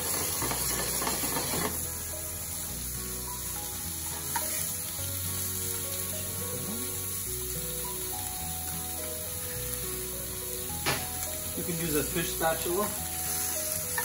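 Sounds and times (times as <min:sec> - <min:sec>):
fish sizzling in a pan: 0:00.0 - 0:14.0.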